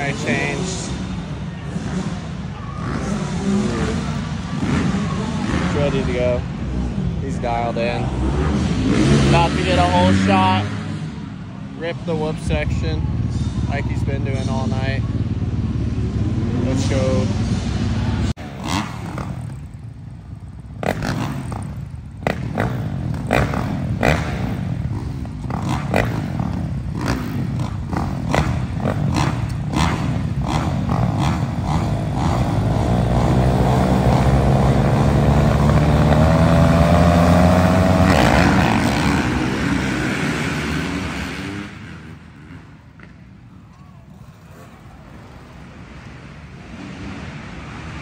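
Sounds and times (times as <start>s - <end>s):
dirt bike engines revving: 0.0s - 48.0s
dirt bike passing close: 13.9s - 43.4s.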